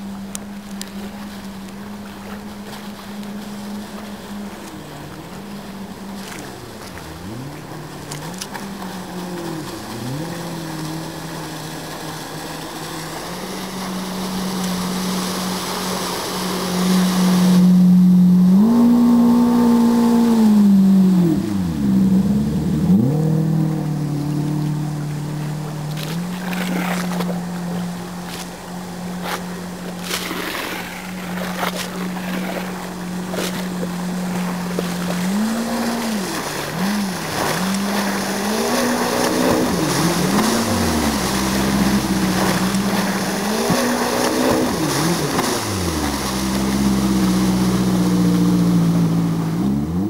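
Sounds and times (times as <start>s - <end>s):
boat engine running at speed: 0.0s - 50.0s.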